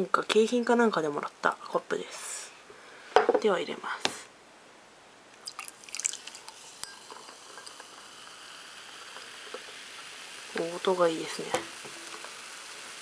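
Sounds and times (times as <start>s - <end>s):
cola splashing into a glass: 5.4s - 9.2s
cola fizzing: 5.4s - 13.0s.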